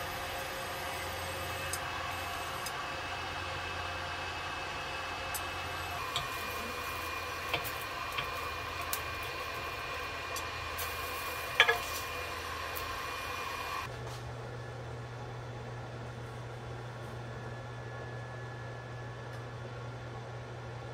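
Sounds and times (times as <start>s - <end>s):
thin electrical whine: 0.0s - 13.9s
cooktop cooling fan hum: 0.0s - 20.9s.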